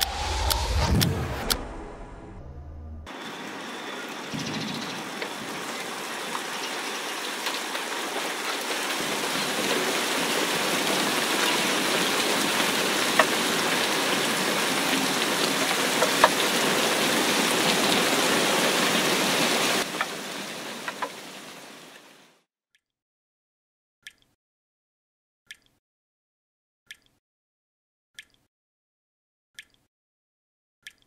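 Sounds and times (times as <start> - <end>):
sharp drop hits: 0.0 - 3.1
rain falling on leaves: 3.1 - 22.4.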